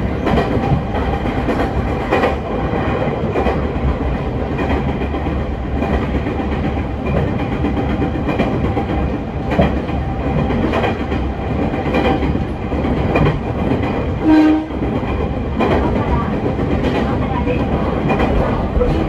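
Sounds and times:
electric train rumbling: 0.0s - 19.0s
wheels clicking over rail joints: 0.1s - 19.0s
train horn blast: 14.2s - 14.8s.

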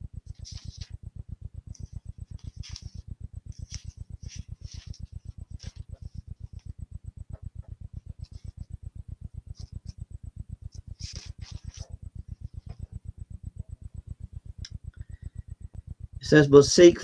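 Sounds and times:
low pulsing hum: 0.0s - 17.0s
pages turning: 0.4s - 0.9s, 2.4s - 3.0s, 3.6s - 5.0s, 11.0s - 11.9s.

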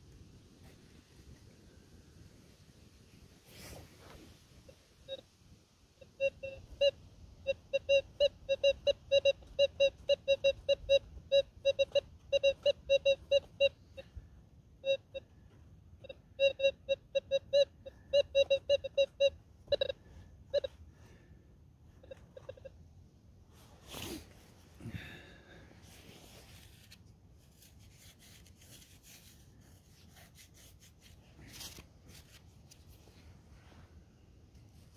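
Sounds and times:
rustle: 0.0s - 5.9s, 23.5s - 34.0s
metal detector beeps: 6.0s - 14.2s, 14.8s - 15.3s, 16.0s - 20.9s, 21.9s - 22.8s.

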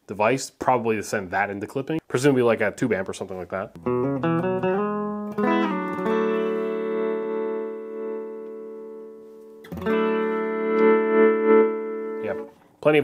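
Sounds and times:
electric guitar notes and chords: 3.8s - 12.6s.

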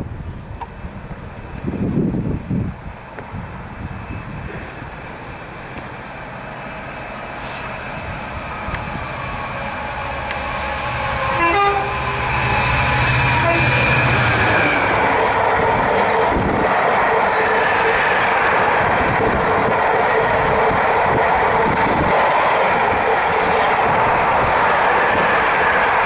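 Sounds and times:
diesel locomotive engine: 0.0s - 26.0s
train wheels rumbling on rails: 0.0s - 26.0s.

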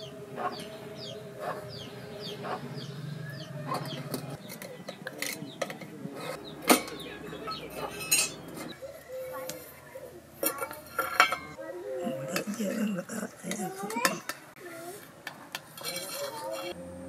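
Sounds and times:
small birds chirping: 0.0s - 10.8s
chickens clucking: 0.0s - 14.6s.

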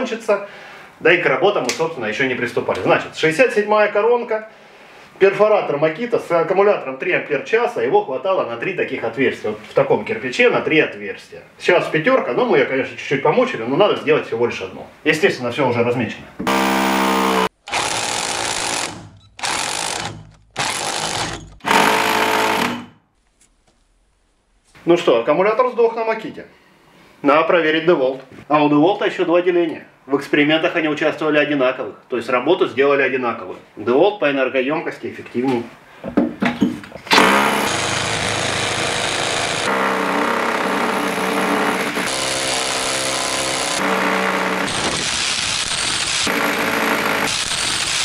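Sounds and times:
rotary hammer drilling brick: 16.4s - 23.0s, 37.1s - 48.0s.

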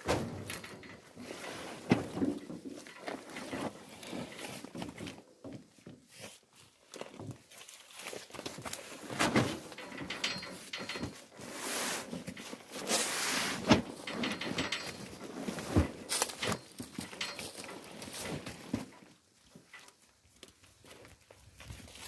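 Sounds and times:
sacks thudding onto boards: 0.0s - 0.7s
sacks dragged across wooden boards: 1.1s - 5.0s, 11.3s - 14.3s, 15.0s - 16.8s.

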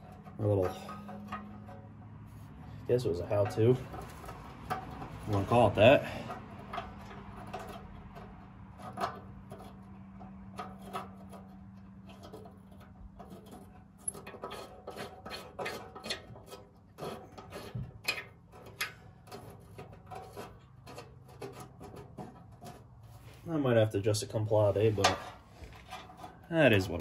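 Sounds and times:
wrench clicking and scraping: 3.4s - 22.9s.

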